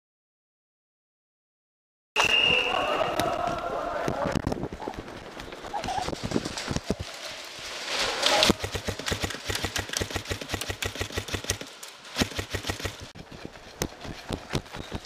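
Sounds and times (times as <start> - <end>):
rustling: 4.1 - 15.0
airsoft rifle rapid firing: 8.4 - 13.1.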